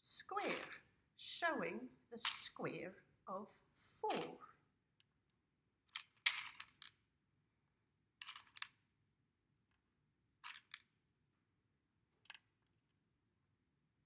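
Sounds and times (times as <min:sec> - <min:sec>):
small pegs clicking and rattling: 0:05.8 - 0:07.1, 0:08.1 - 0:09.0, 0:09.6 - 0:11.0, 0:12.0 - 0:13.0.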